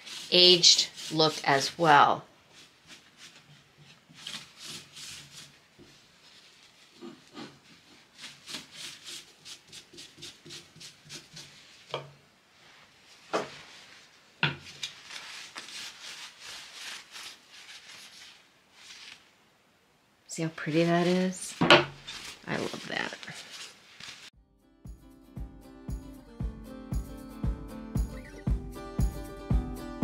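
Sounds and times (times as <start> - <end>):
brush and rag rubbing on wood: 0.0 - 19.3, 20.4 - 24.4.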